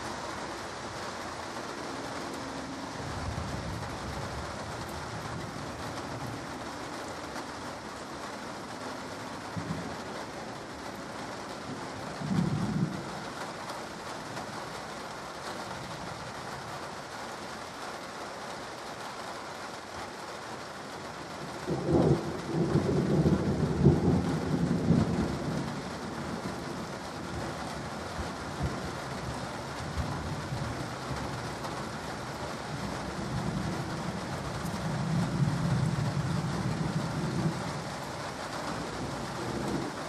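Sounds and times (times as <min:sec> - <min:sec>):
steady rain falling: 0:00.0 - 0:40.0
rolling thunder: 0:11.7 - 0:13.3, 0:21.6 - 0:40.0.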